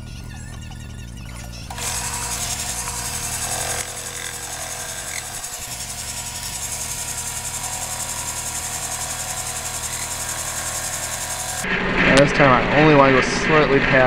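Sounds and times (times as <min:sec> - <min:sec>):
metal lathe machining: 0:01.7 - 0:11.6.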